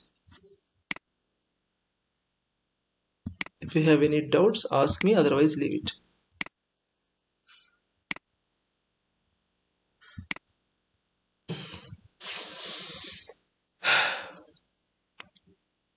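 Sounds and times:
computer mouse clicks: 3.3s - 3.6s, 10.1s - 10.4s
breath hiss on microphone: 11.5s - 13.3s.

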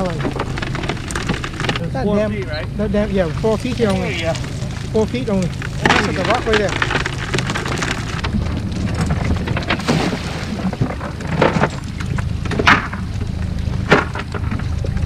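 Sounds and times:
fish flopping: 0.0s - 15.0s
low hum: 0.0s - 15.0s
water pattering: 0.0s - 15.0s
sharp knocks: 5.0s - 14.7s.

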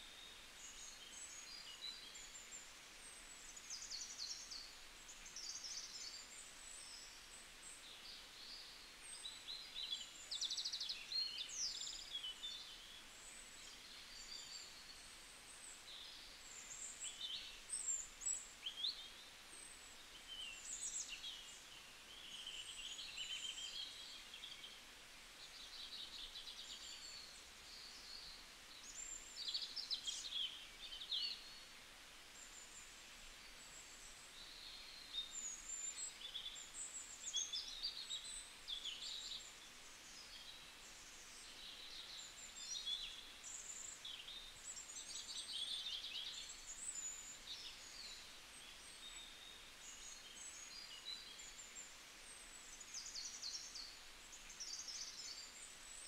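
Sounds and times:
faint steady hiss: 0.0s - 56.0s
small birds chirping and trilling: 0.2s - 56.0s.

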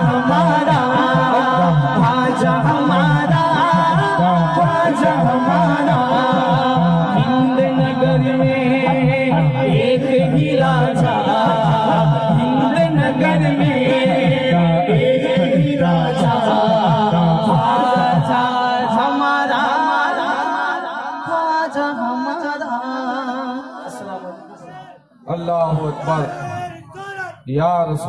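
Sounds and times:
man singing unaccompanied: 0.0s - 24.4s.

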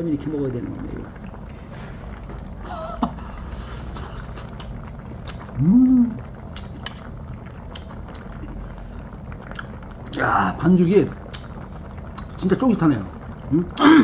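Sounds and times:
man humming: 5.5s - 6.3s.

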